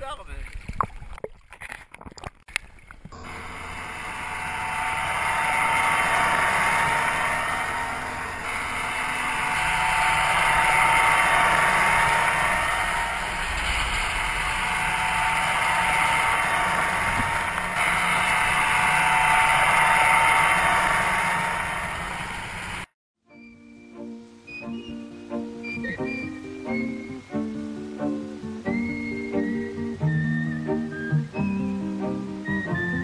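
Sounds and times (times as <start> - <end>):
water rushing along hull: 0.0 - 22.9, 24.7 - 33.0
wind: 0.0 - 33.0
motorboat engine: 3.2 - 22.9.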